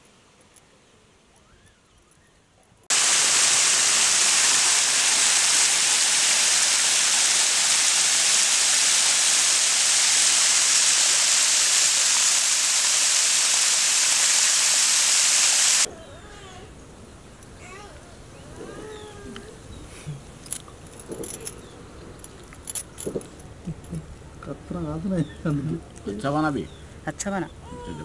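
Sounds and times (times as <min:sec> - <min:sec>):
waterfall splashing over rocks: 0:02.9 - 0:15.9.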